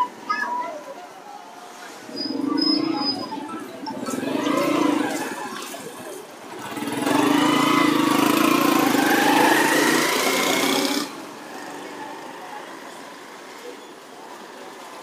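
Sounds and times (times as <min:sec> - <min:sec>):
small vehicle engine running: 0:06.5 - 0:12.4.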